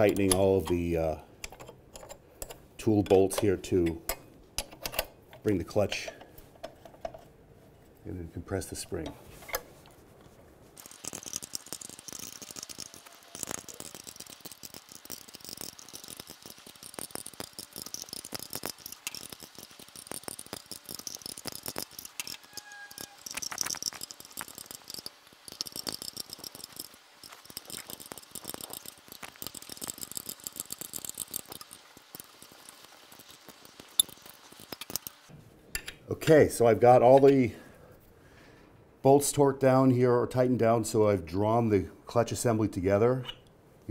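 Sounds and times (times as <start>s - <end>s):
wrench clicking and rattling: 1.4s - 7.2s, 10.8s - 35.2s.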